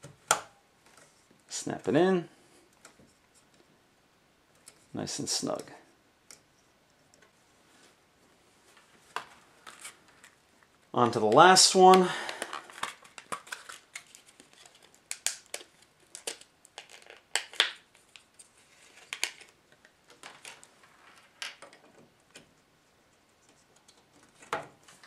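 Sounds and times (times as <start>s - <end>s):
plastic packaging crinkling: 11.6s - 21.5s.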